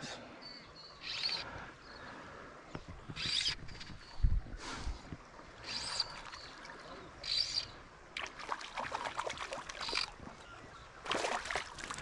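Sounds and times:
fish splashing in water: 0:08.2 - 0:10.3, 0:11.0 - 0:12.0.

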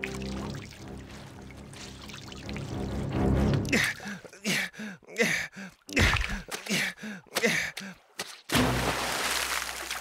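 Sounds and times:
man grunting and groaning: 0:03.7 - 0:08.0.

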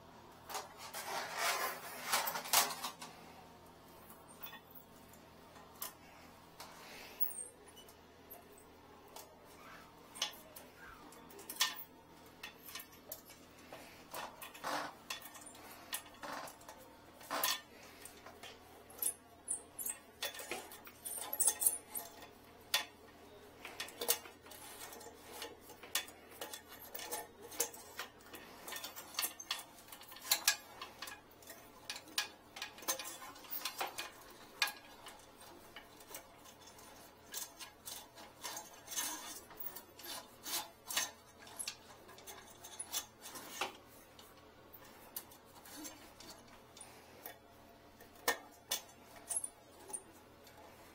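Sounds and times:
metal rod scraping porcelain: 0:20.2 - 0:43.9.

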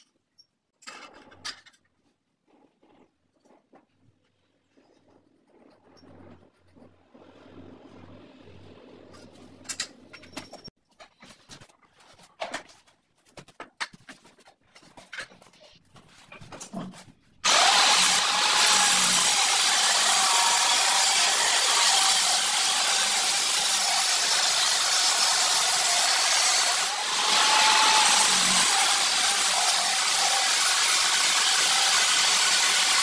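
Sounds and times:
angle grinder cutting tile: 0:17.4 - 0:33.0.

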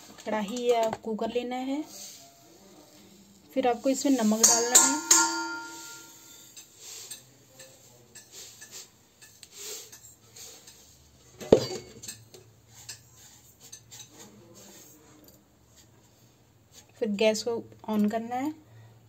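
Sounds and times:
salt grains scraping on metal pan: 0:01.9 - 0:11.2, 0:12.6 - 0:15.0
metallic knock on pan: 0:04.4 - 0:06.4.

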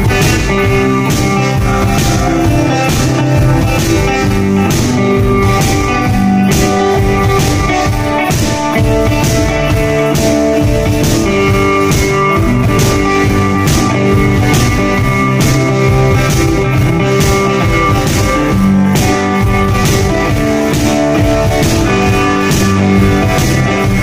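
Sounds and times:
amplified electric guitar: 0:00.0 - 0:24.0
drum beat: 0:00.0 - 0:24.0.

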